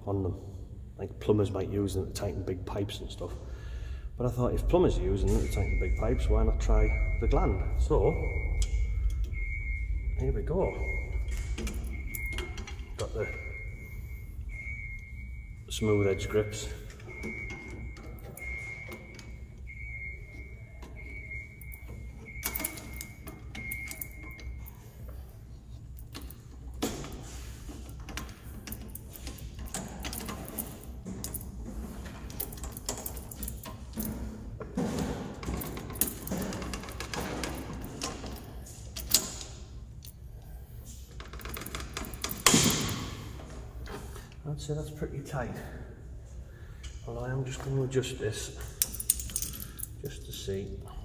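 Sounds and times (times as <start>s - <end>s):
steady high beep: 4.6s - 25.0s
metal clinking and rattling: 25.8s - 40.2s, 48.6s - 50.1s.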